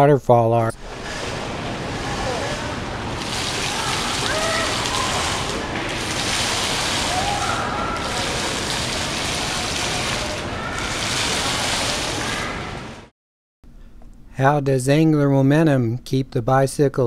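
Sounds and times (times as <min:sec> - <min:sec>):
water falling and splashing: 0:00.8 - 0:13.1.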